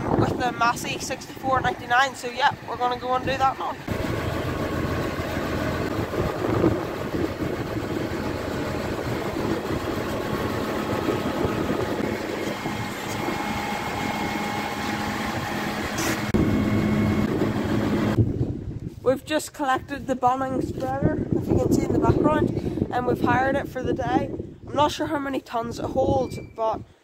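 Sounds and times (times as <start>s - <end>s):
tractor diesel engine idling: 0.1s - 18.2s.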